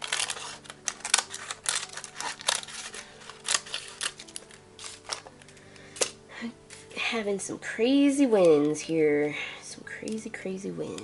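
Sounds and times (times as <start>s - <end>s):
scissors snipping paper: 0.0s - 6.2s
paper being handled: 0.0s - 6.9s.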